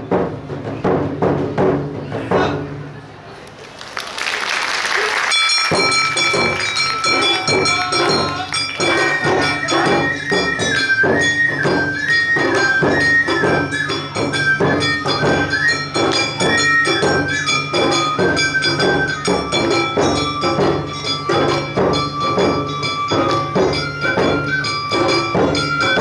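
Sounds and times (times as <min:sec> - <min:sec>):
drums and percussion beat: 0:00.0 - 0:03.1, 0:04.1 - 0:26.0
bamboo flute melody: 0:05.7 - 0:26.0.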